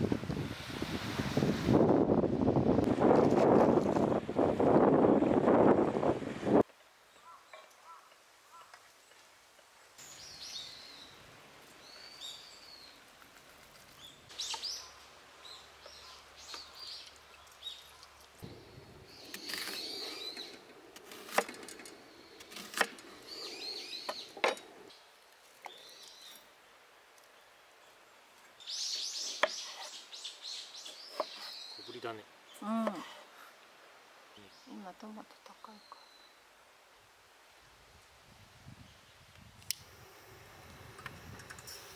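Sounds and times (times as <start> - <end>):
birds chirping: 13.9 - 33.2.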